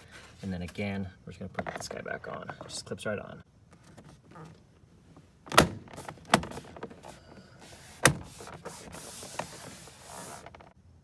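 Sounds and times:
hand scuffing over panel: 0:05.8 - 0:10.7.

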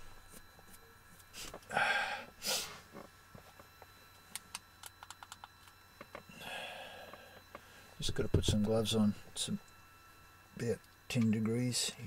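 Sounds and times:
person sniffing: 0:01.3 - 0:02.9.

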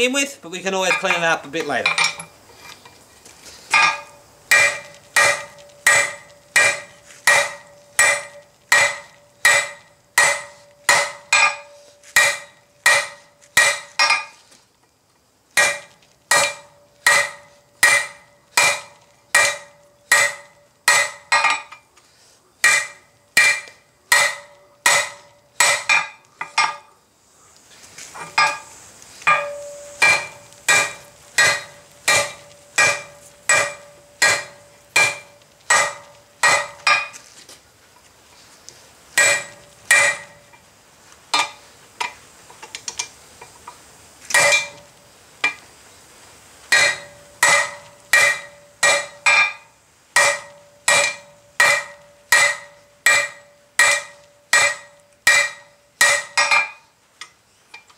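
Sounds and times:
hammer striking steel on anvil: 0:03.7 - 0:14.3, 0:15.6 - 0:21.8, 0:22.6 - 0:26.9, 0:28.2 - 0:37.2, 0:39.2 - 0:40.6, 0:41.3 - 0:42.2, 0:44.3 - 0:45.6, 0:46.7 - 0:56.8.

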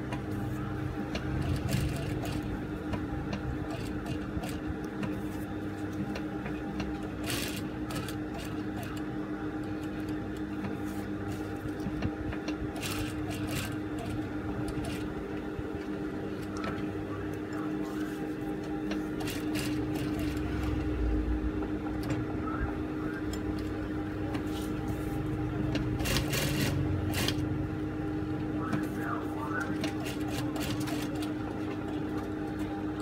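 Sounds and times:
motor hum: 0:00.0 - 0:33.0
sewing machine stitching: 0:01.3 - 0:02.5, 0:07.2 - 0:09.0, 0:12.8 - 0:15.1, 0:19.2 - 0:20.6, 0:25.9 - 0:27.4.

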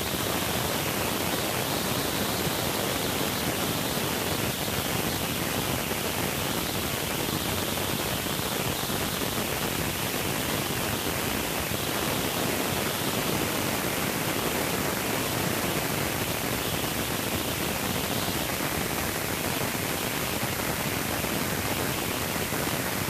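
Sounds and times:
steady static hiss: 0:00.0 - 0:23.0.

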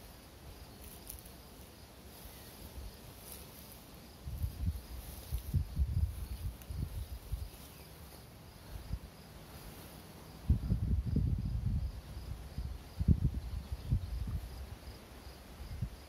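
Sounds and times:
insects chirping: 0:00.0 - 0:16.0
wind buffeting microphone: 0:04.2 - 0:07.6, 0:10.4 - 0:15.0.

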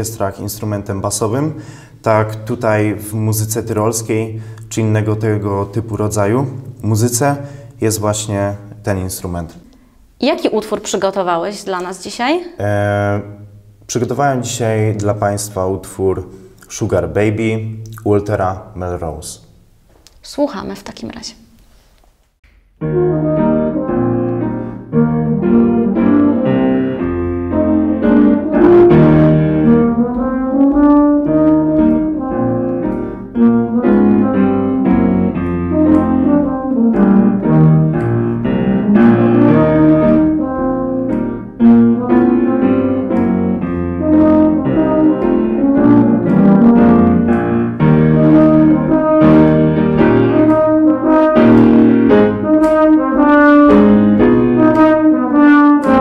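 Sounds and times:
piano accompaniment: 0:00.0 - 0:09.6, 0:22.7 - 0:56.0
euphonium melody: 0:22.8 - 0:56.0.

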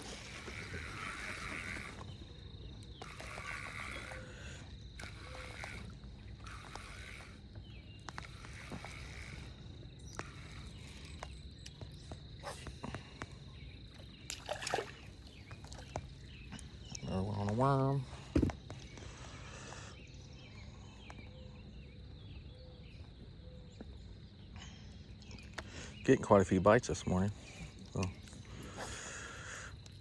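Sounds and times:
faint lakeside ambience: 0:00.0 - 0:30.0
fish splashing in water: 0:14.3 - 0:16.0.

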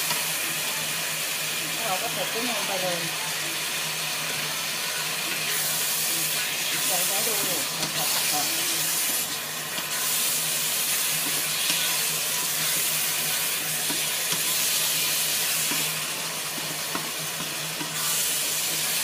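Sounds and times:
food sizzling in a hot pan: 0:00.0 - 0:19.0
spatula knocking on pan: 0:16.5 - 0:17.9.

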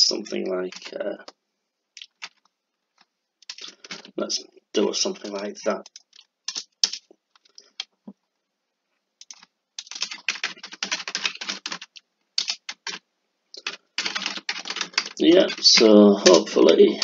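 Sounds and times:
typing on keyboard: 0:00.7 - 0:00.9, 0:02.0 - 0:02.4, 0:03.4 - 0:04.2, 0:05.0 - 0:07.9, 0:09.2 - 0:13.0, 0:13.6 - 0:17.0.

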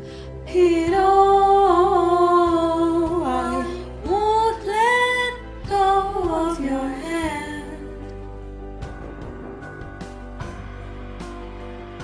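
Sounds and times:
woman singing: 0:00.5 - 0:08.0.

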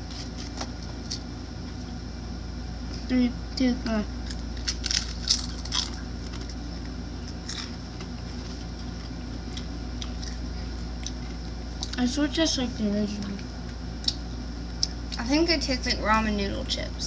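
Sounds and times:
crisps crunching: 0:00.0 - 0:01.3, 0:04.2 - 0:12.0
steady low hum: 0:00.0 - 0:17.0
quiet chewing: 0:04.2 - 0:12.0.

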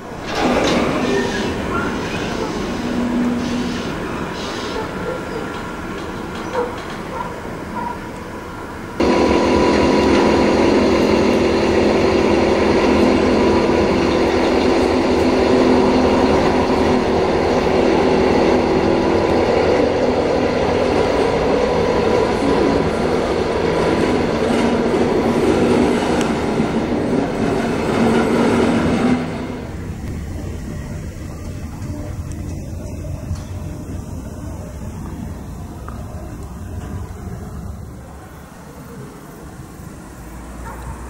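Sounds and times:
freight train rail rumble: 0:00.0 - 0:41.0.

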